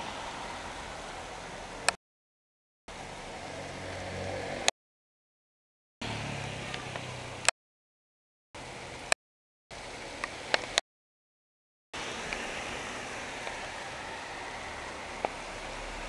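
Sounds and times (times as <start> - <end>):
heavy rain hissing: 0.0 - 1.9, 12.0 - 16.0
traffic hum on wet street: 0.0 - 2.0, 2.9 - 4.7, 6.0 - 7.5, 9.8 - 10.8, 12.0 - 16.0.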